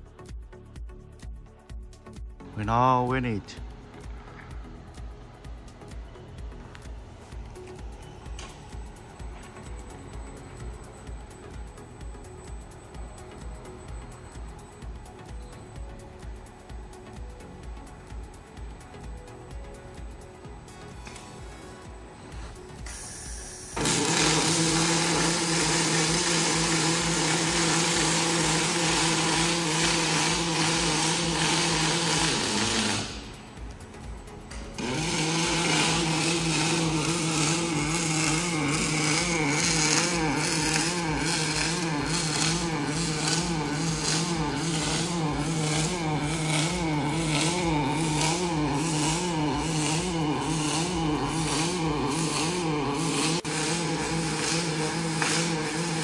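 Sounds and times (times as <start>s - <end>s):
welding arc crackling buzz: 22.4s - 56.0s.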